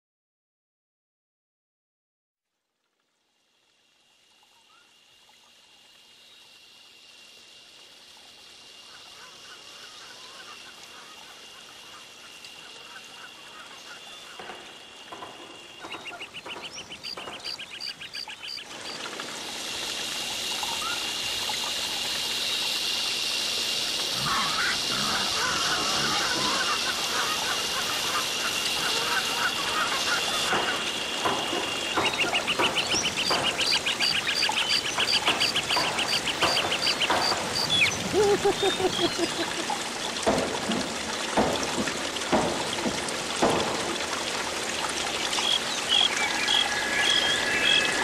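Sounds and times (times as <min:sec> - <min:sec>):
steady high whine: 0:46.1 - 0:48.0.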